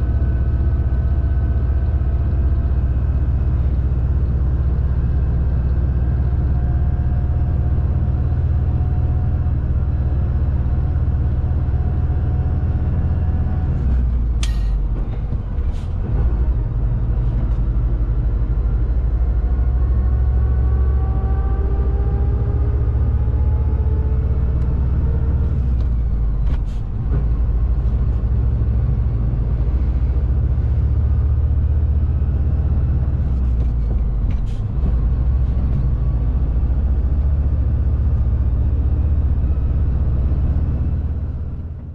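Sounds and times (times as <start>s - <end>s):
truck diesel engine drone: 0.0s - 41.9s.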